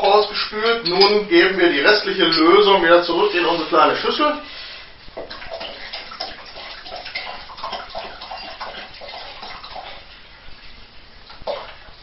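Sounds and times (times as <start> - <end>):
liquid pouring into a jug: 5.2 - 12.0.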